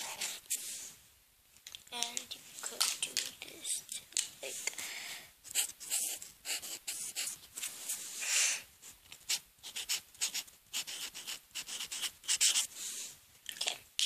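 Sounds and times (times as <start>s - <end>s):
pen scratching on paper: 5.5s - 7.4s, 9.2s - 12.7s.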